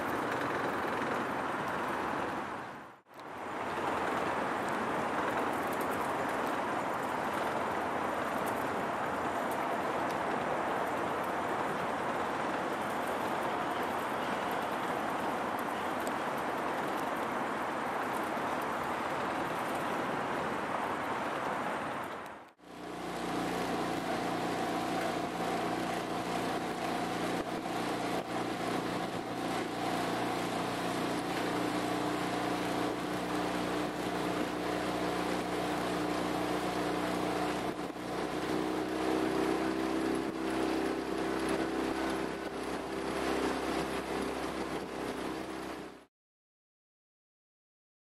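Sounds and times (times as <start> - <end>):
rush of wind and water: 0.0 - 46.1
outboard motor hum: 22.6 - 46.1.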